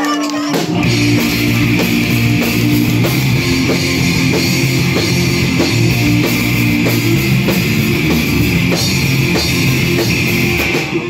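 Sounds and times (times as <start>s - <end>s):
bass guitar: 0.0s - 11.0s
distorted electric guitars: 0.0s - 11.0s
drum kit beat: 0.0s - 11.0s.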